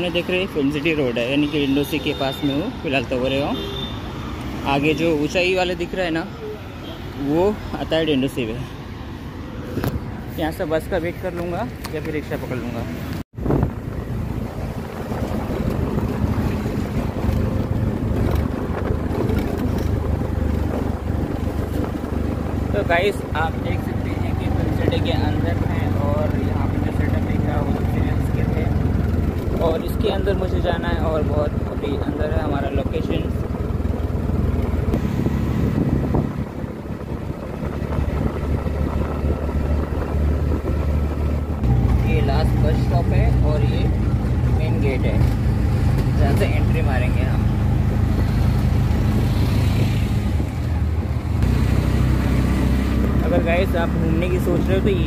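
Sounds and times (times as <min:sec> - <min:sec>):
wind and road noise: 0:00.0 - 0:55.0
wind noise on microphone: 0:13.3 - 0:23.0, 0:34.7 - 0:42.0
auto-rickshaw engine running: 0:13.4 - 0:55.0.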